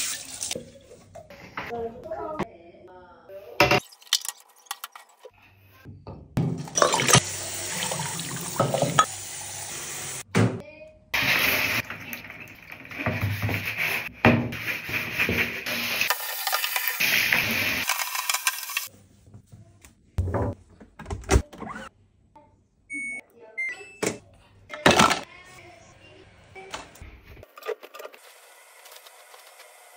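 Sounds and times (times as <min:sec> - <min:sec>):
short beeps: 0:22.9 - 0:24.0.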